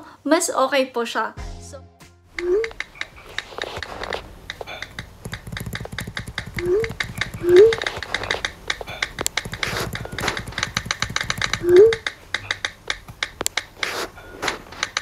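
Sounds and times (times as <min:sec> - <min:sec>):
keystroke clicks: 0:02.4 - 0:15.0.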